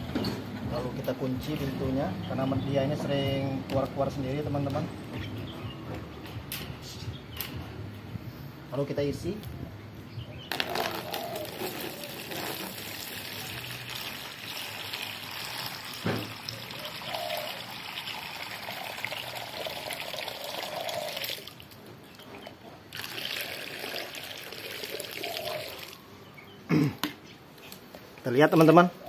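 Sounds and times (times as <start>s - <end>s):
water pouring into plastic tray: 11.4s - 21.6s, 22.9s - 26.0s.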